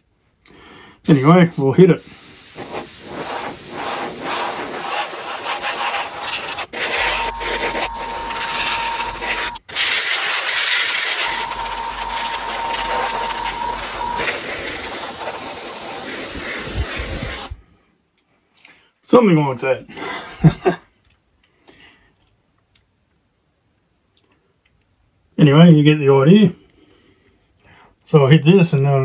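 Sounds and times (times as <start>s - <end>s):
airbrush spraying hiss: 1.0s - 17.6s.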